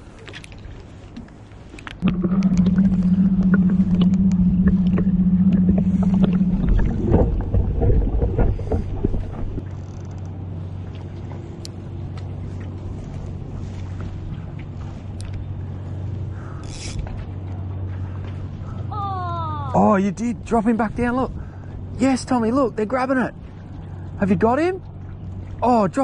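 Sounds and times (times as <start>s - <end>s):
boat motor humming: 0.0s - 26.0s
low rumbling: 1.9s - 16.6s
loud steady hum: 2.0s - 9.6s.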